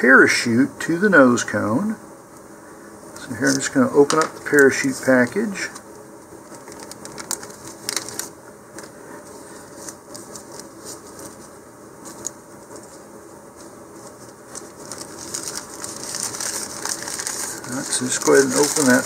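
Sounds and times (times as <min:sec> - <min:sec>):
plastic crinkling and rustling: 0:06.4 - 0:19.0.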